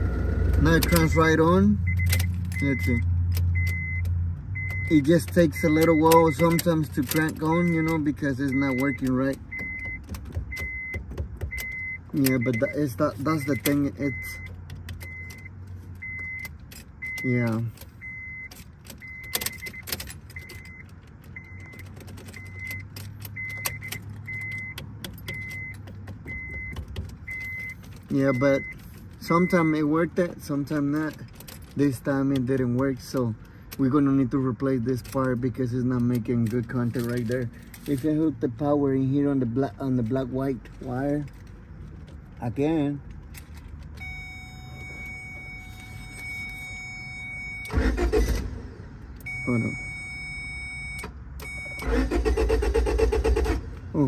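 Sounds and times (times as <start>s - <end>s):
warning chime beeping: 0.6s - 4.0s, 4.6s - 6.8s, 7.4s - 10.0s, 11.6s - 20.8s, 22.4s - 30.2s, 44.0s - 48.1s, 49.2s - 52.5s
ignition switch clicks and rattles: 1.9s - 34.2s
car starter cranking: 39.9s - 50.0s, 50.9s - 54.0s.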